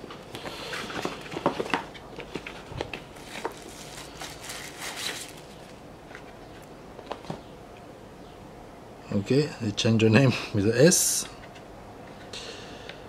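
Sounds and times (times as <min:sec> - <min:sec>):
cardboard box handling: 0:00.9 - 0:06.3.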